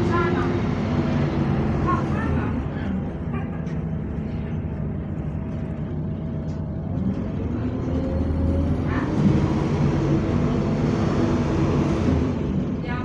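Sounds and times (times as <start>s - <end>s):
bus engine revving: 0.0s - 13.0s.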